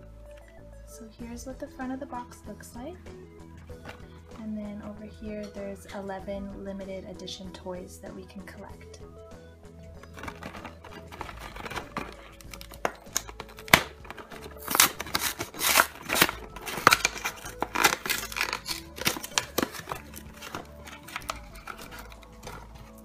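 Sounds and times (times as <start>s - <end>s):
background music: 0.0s - 23.0s
cardboard box tearing and crinkling: 10.0s - 23.0s.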